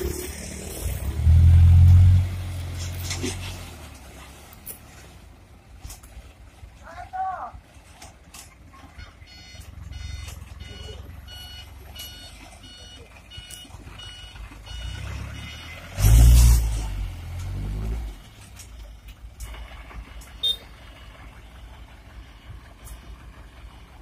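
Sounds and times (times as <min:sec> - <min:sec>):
diesel engine revving: 0:00.0 - 0:05.5, 0:09.3 - 0:24.0
truck reversing beeper: 0:08.9 - 0:17.9, 0:19.4 - 0:23.9.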